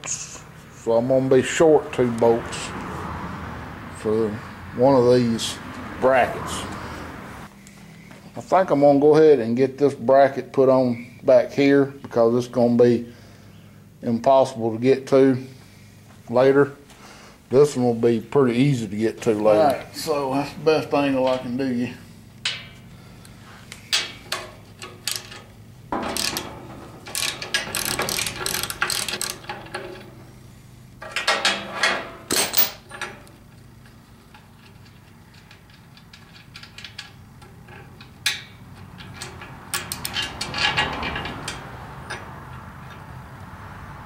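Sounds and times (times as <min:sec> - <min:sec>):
wrench rapid metallic clicking: 0:27.1 - 0:29.6.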